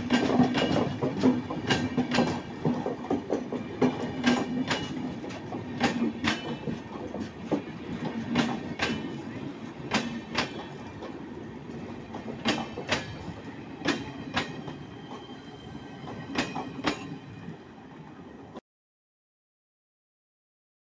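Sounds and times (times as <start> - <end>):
wheels clacking over rail joints: 0.0 - 15.3
train wheels rumbling on rails: 0.0 - 17.7.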